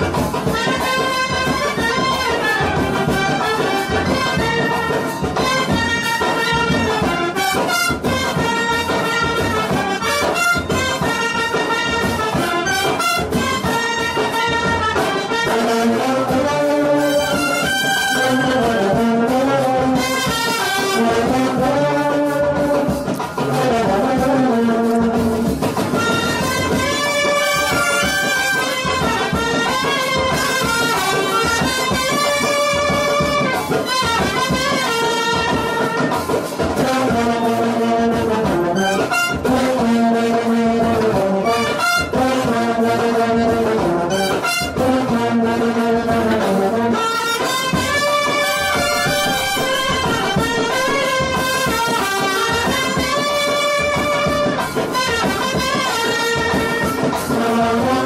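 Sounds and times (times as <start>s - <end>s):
brass horns melody: 0.0s - 58.0s
percussion beat: 0.0s - 58.0s.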